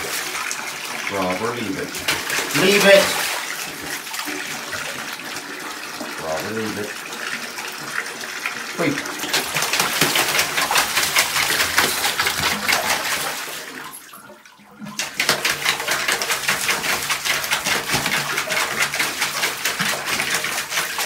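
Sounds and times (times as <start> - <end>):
water running from faucet: 0.0 - 21.0
dog biting splashing water: 9.2 - 13.4.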